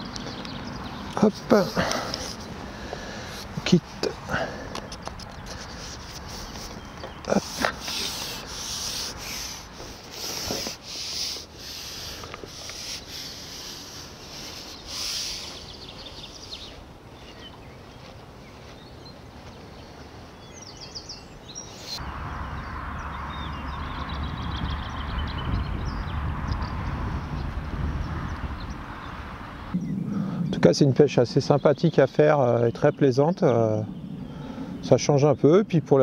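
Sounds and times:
rubbing and scraping strokes: 0:04.9 - 0:16.2
wind rumble on microphone: 0:22.0 - 0:36.0.

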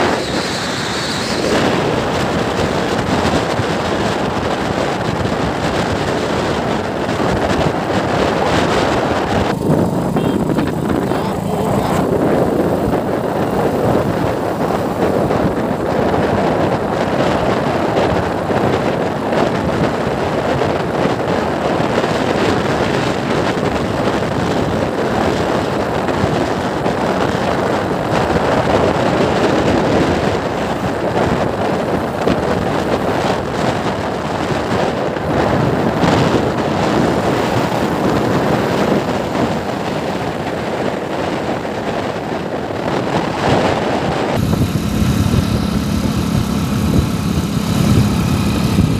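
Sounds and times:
motorcycle engine running: 0:00.0 - 0:21.8, 0:44.4 - 0:48.9
wind rushing over microphone: 0:00.0 - 0:48.9.

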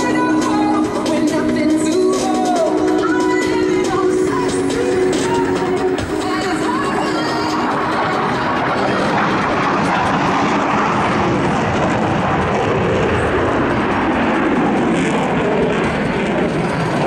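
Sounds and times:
jet engine roar: 0:00.0 - 0:17.0.

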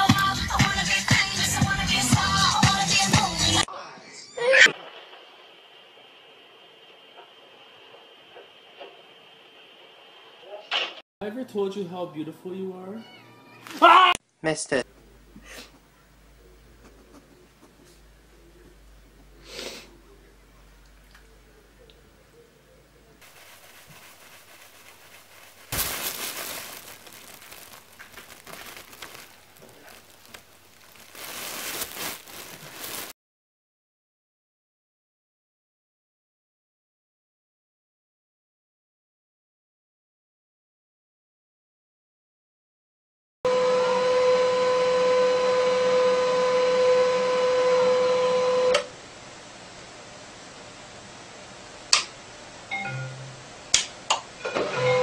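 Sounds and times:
faint hum: 0:14.9 - 0:25.6
material crinkling rustle: 0:23.2 - 0:33.2.

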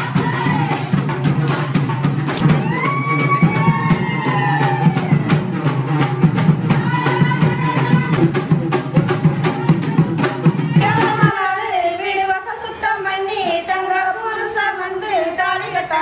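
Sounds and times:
drum beaten fast: 0:00.0 - 0:11.7.

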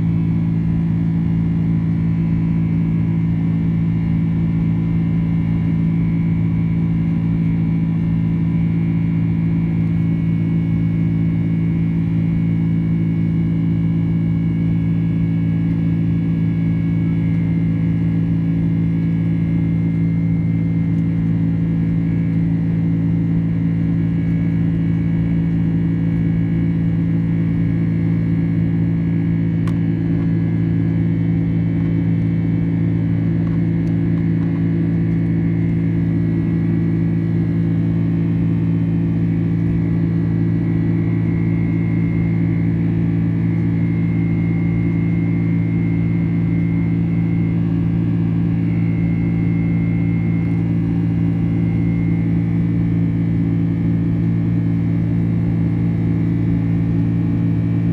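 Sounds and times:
jet engine drone in cabin: 0:00.0 - 0:57.9
faint high whine: 0:26.2 - 0:57.9.

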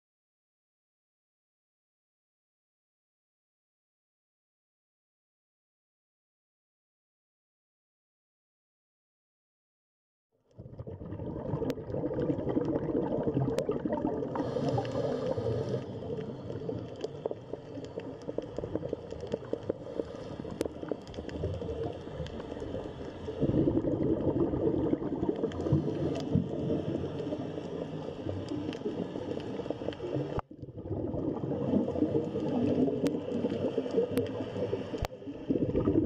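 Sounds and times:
underwater bubbling and gurgling: 0:10.5 - 0:36.0
fine crackling clicks: 0:14.6 - 0:23.3, 0:25.2 - 0:30.5, 0:31.7 - 0:35.2.

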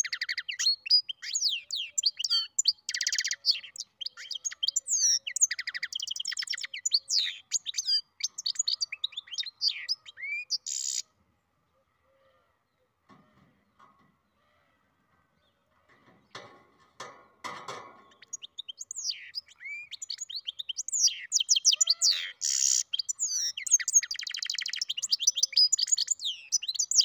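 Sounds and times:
songbird singing trills: 0:00.0 - 0:11.1, 0:17.9 - 0:27.0.

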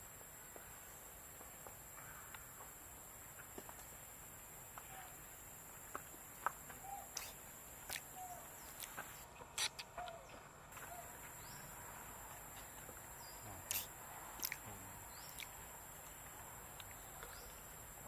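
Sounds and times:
steady high hiss: 0:00.0 - 0:09.8, 0:10.6 - 0:18.0.

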